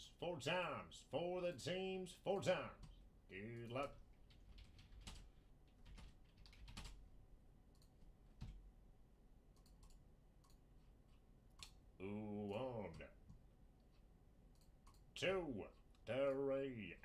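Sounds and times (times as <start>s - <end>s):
typing on keyboard: 3.6s - 7.0s, 9.6s - 10.6s.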